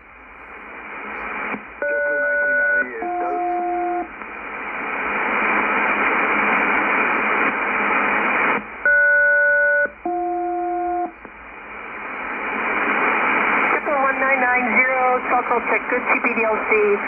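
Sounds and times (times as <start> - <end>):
radio static hiss: 0.0 - 17.0
paired radio calling tones: 1.0 - 4.1, 12.7 - 17.0.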